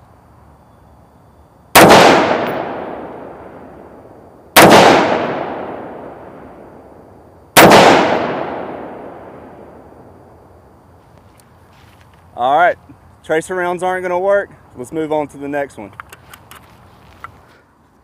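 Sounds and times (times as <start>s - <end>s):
rifle shots echoing: 1.7s - 10.2s.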